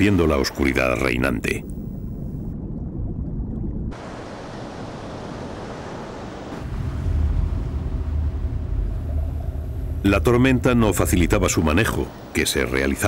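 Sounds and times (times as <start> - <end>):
low rumble: 1.6 - 4.0, 6.6 - 12.2
churning seawater: 3.9 - 13.0.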